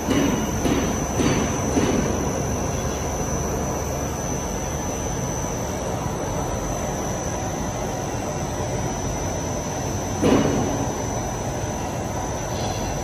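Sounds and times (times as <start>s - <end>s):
high machine whine: 0.0s - 13.0s
machine hum and hiss: 0.0s - 13.0s.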